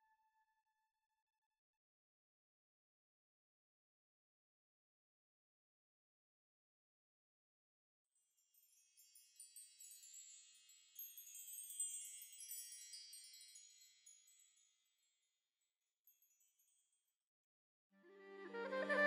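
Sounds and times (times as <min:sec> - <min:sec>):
faint tinkling chimes: 0:08.1 - 0:17.2.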